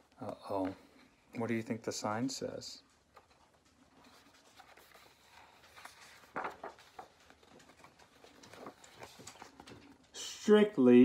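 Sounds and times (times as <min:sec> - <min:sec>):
paper pages rustling: 0:03.0 - 0:10.2.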